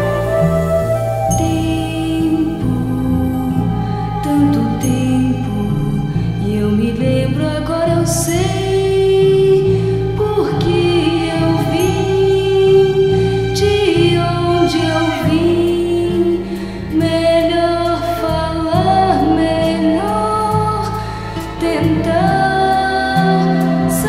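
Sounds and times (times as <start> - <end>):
song with sliding melody: 0.0 - 24.0
steady bass line: 0.0 - 24.0.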